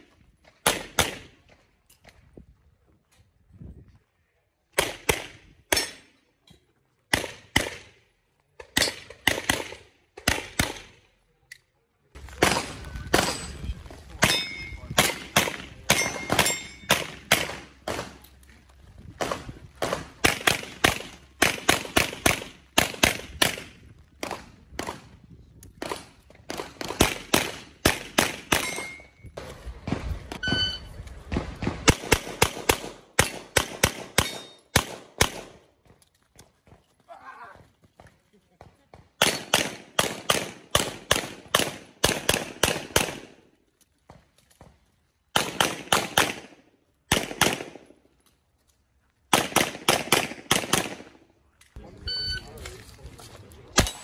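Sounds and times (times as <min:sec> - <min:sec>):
metallic ring from steel target: 0:14.2 - 0:14.9, 0:15.9 - 0:16.9
rapid pistol shots: 0:15.0 - 0:18.2, 0:19.2 - 0:25.1, 0:25.8 - 0:29.0, 0:31.3 - 0:35.6, 0:39.2 - 0:43.4, 0:45.4 - 0:47.8, 0:49.3 - 0:51.2.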